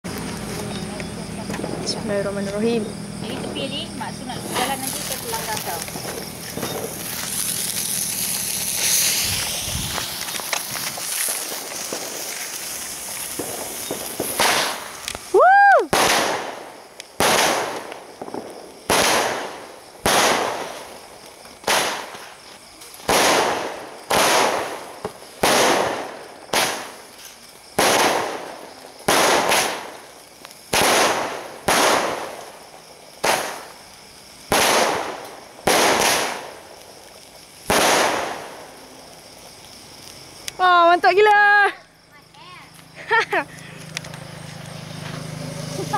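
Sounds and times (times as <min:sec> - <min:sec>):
fireworks bangs: 0:00.0 - 0:45.9
fuse hissing: 0:04.6 - 0:15.9.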